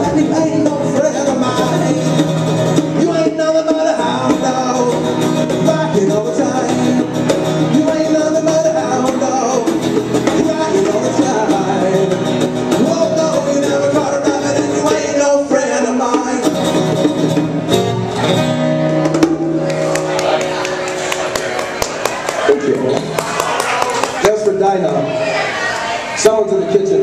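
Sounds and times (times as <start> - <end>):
man singing: 0.0 - 17.3
strummed acoustic guitar: 0.0 - 26.3
bongos: 16.1 - 20.0.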